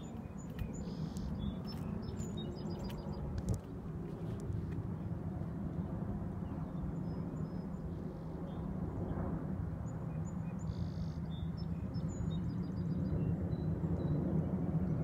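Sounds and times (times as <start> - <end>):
steady low rumble: 0.0 - 10.0.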